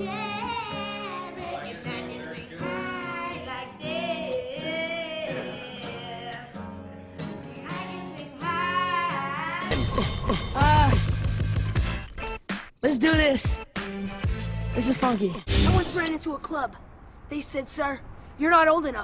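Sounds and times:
person singing: 0.0 - 11.1
guitar accompaniment: 0.0 - 16.1.

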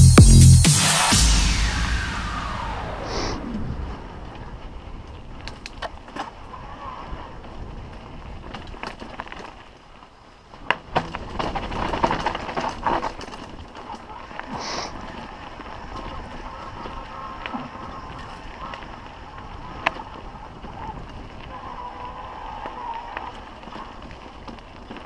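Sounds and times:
wind on camera: 2.4 - 9.4, 14.9 - 25.0
bike tyres on dirt trail: 2.7 - 25.0
bike rattling over rough ground: 4.0 - 25.0.

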